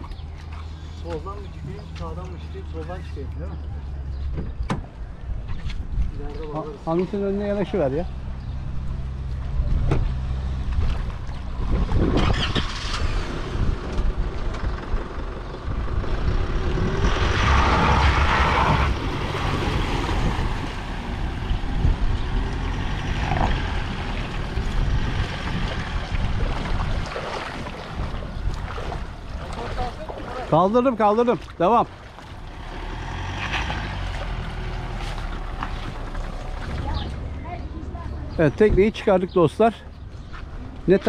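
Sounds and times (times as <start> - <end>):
truck engine under load: 9.2 - 26.8, 32.3 - 38.4
water splashing off hull: 17.7 - 32.8, 33.6 - 37.4.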